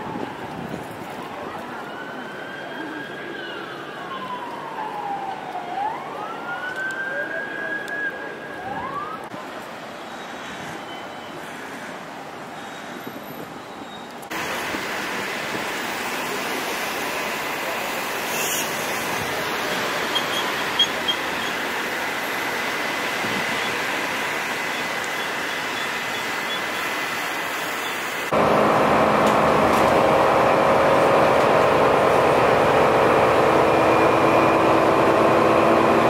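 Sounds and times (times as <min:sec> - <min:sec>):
emergency siren wailing: 0:00.0 - 0:09.3, 0:28.2 - 0:36.0
city road traffic noise: 0:00.0 - 0:36.0.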